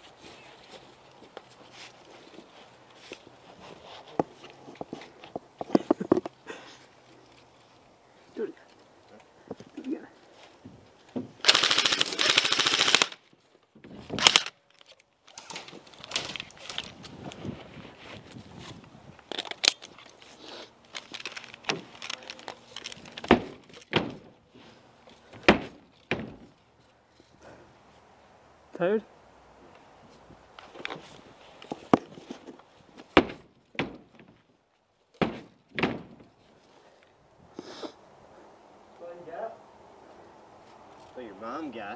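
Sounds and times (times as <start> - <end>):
airsoft rifle bursts: 11.4 - 13.2, 14.2 - 14.6
pellets striking wooden wall: 23.2 - 24.3, 25.3 - 26.5, 33.0 - 34.4, 35.2 - 36.3.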